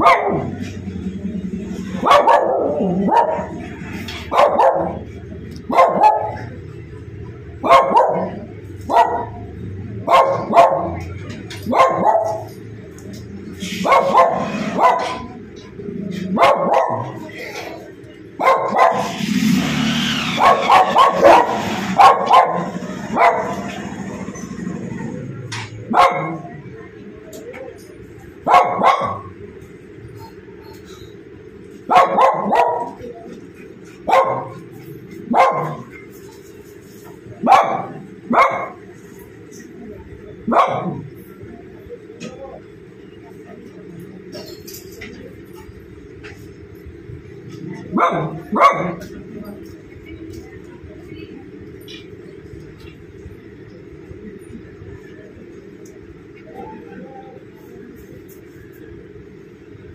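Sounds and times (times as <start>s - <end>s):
dog barking: 0.0s - 0.6s, 1.9s - 6.6s, 7.6s - 12.6s, 13.6s - 15.4s, 16.3s - 17.3s, 18.4s - 19.3s, 20.3s - 23.8s, 25.9s - 26.6s, 28.4s - 29.4s, 31.9s - 33.1s, 34.1s - 34.6s, 35.3s - 36.0s, 37.4s - 38.8s, 40.5s - 41.1s, 47.8s - 49.0s.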